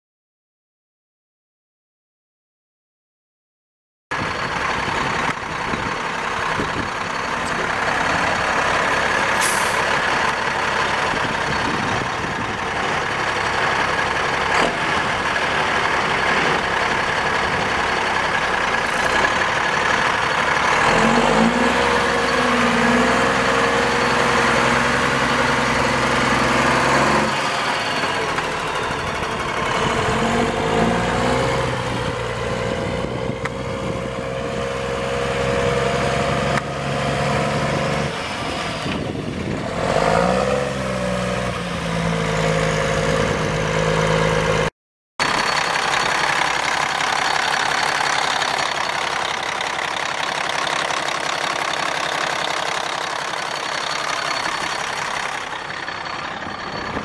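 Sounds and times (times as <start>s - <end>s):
diesel truck engine idling and revving: 4.1s - 57.0s
brief air hiss: 9.4s - 9.9s.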